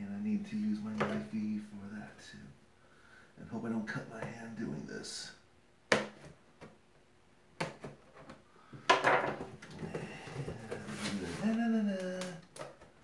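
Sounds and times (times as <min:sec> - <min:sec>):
cardboard scraping rustle: 0:10.2 - 0:11.6.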